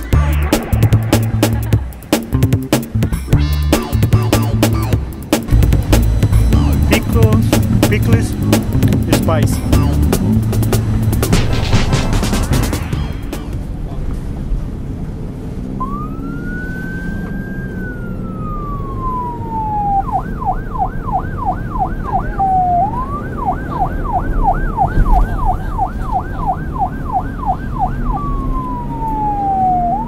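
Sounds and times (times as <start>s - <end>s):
low street rumble: 0.0s - 30.0s
police siren wail and yelp: 15.8s - 30.0s.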